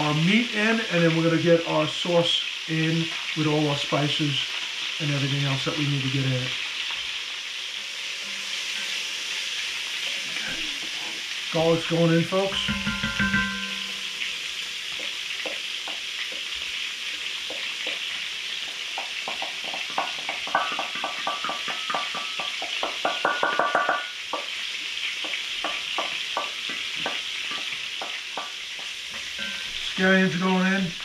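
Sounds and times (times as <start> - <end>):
vegetables sizzling in pot: 0.0 - 31.0
spoon tapping metal bowl: 12.5 - 14.4, 19.6 - 24.4.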